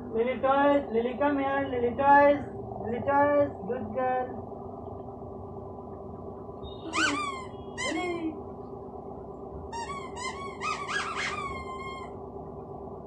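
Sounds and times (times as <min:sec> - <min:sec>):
rubber dog toy squeaking: 0:06.9 - 0:08.2, 0:09.7 - 0:12.1.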